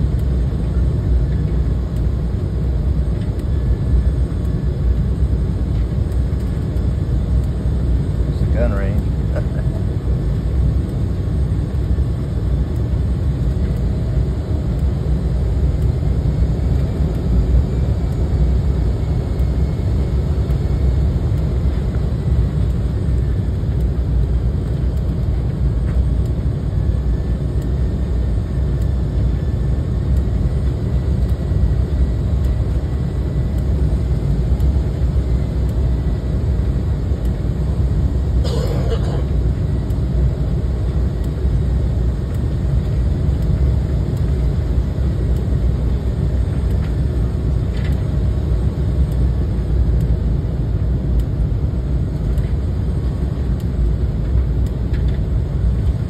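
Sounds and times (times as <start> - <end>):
jet engine and airflow rush: 0.0 - 56.0.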